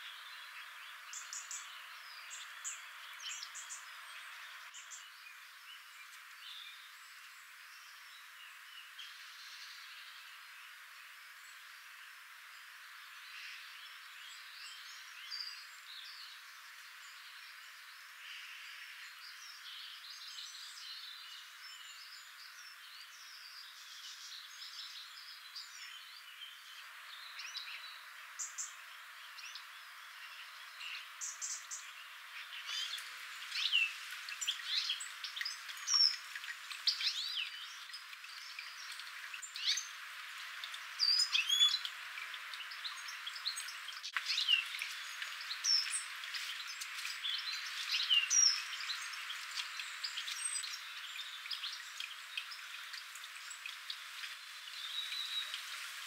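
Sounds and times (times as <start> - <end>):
faint steady hiss: 0.0 - 56.0
birds chirping and whistling: 41.0 - 41.9.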